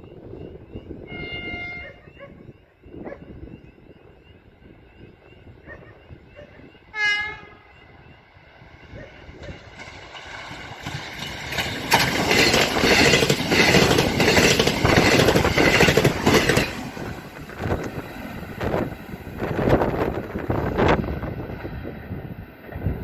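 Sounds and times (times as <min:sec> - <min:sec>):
diesel train rumble: 0:00.0 - 0:23.0
wheel clatter over rail joints: 0:09.4 - 0:20.4.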